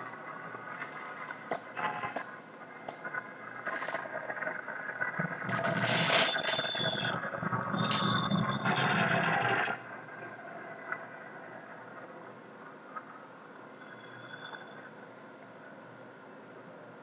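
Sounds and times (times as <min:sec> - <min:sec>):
shrill whistle: 0:06.2 - 0:08.8, 0:13.8 - 0:14.9.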